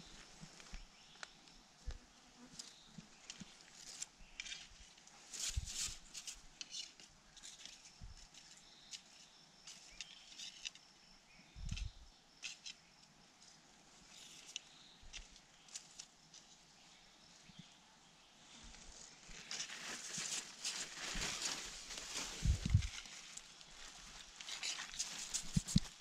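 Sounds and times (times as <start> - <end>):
dry bamboo and leaves crackling: 2.6 - 10.9, 13.4 - 16.8, 18.5 - 26.0.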